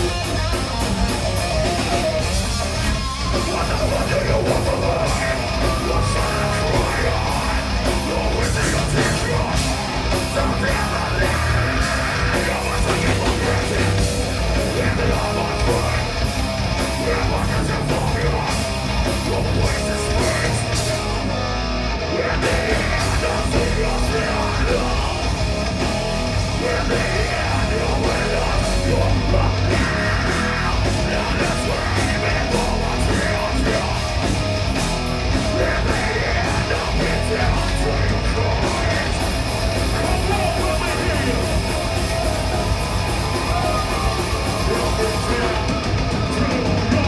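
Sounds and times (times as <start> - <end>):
bass guitar: 0.0 - 47.0
distorted electric guitars: 0.0 - 47.0
shouted singing: 2.8 - 21.3, 22.0 - 25.5, 26.2 - 47.0
pounding drums with cymbals: 22.4 - 47.0.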